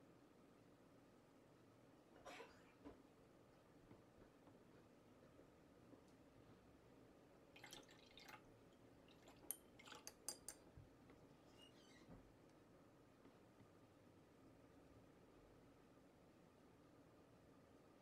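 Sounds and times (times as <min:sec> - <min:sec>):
light clinks against jar: 0:09.5 - 0:10.6.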